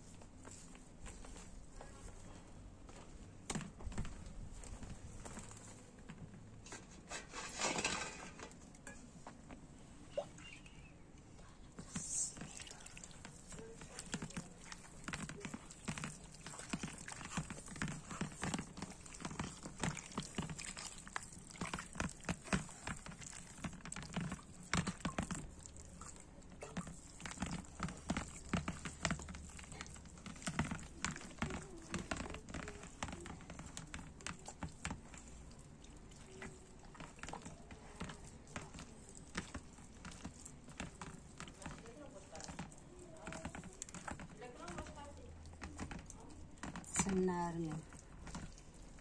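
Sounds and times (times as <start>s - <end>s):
wet dough squelching and slapping: 0.0s - 8.9s, 11.8s - 49.0s
water trickling: 12.0s - 46.3s.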